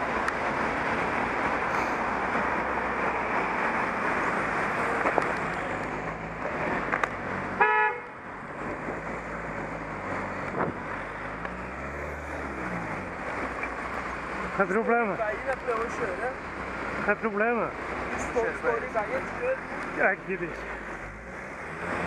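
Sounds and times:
wind and road noise: 0.0 - 22.0
car horn toot: 7.6 - 8.2.

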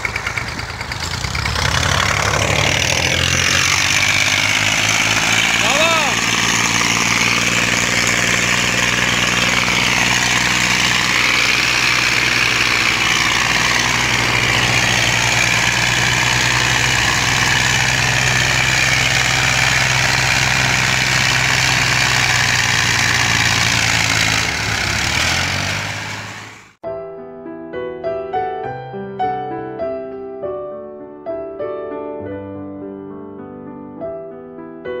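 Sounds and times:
tractor engines under load: 0.0 - 26.8.

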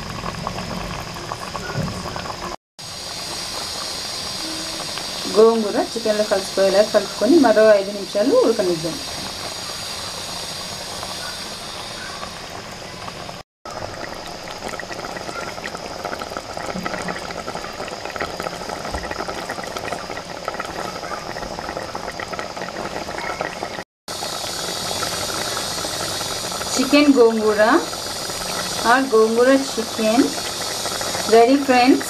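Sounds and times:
steam hissing from pot: 0.0 - 32.0
bubbles popping in thick gravy: 12.1 - 32.0.

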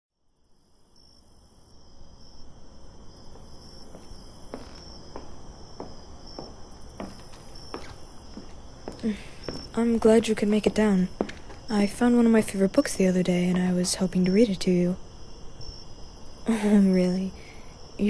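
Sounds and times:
crickets chirping: 0.3 - 18.0
slow footsteps: 3.2 - 12.2, 13.3 - 14.4.

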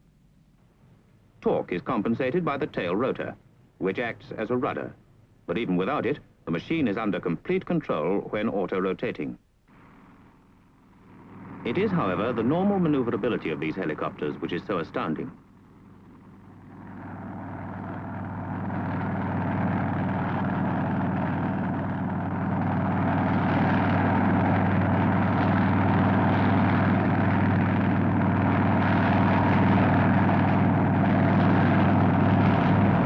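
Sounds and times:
helicopter engine and rotor: 9.7 - 33.0.

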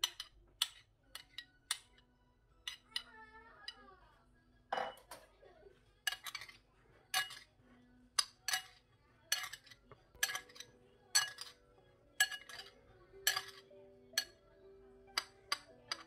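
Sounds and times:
metal spoon clinking against bowl: 0.0 - 2.0, 2.6 - 3.8, 4.8 - 5.2, 6.0 - 7.5, 8.2 - 14.5, 15.1 - 16.0.

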